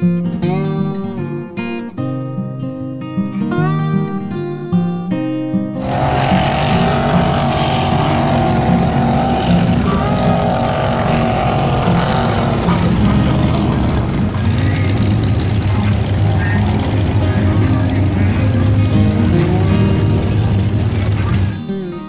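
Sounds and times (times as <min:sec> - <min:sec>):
acoustic guitar music: 0:00.0 - 0:22.0
truck engines droning: 0:05.8 - 0:22.0.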